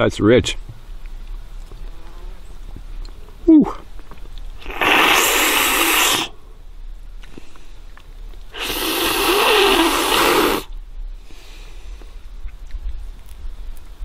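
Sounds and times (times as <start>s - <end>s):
man slurping loudly: 4.6s - 6.4s, 8.6s - 10.7s.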